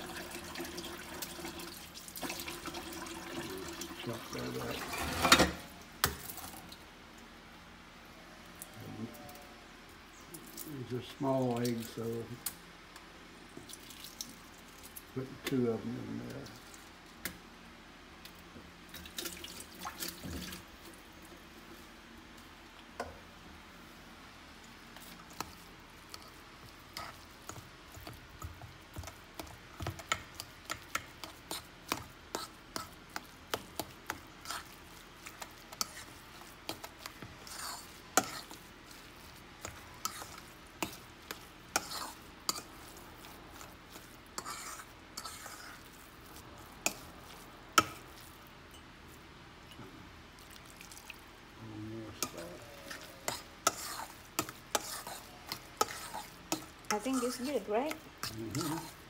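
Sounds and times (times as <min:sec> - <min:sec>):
fork mashing moist food: 0:24.9 - 0:49.7, 0:52.1 - 0:59.0.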